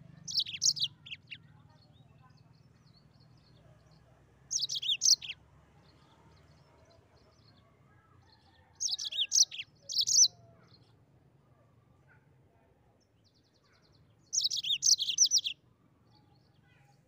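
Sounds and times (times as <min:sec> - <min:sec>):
canary twittering: 0:00.2 - 0:01.4, 0:04.5 - 0:05.4, 0:08.8 - 0:10.4, 0:14.4 - 0:15.6.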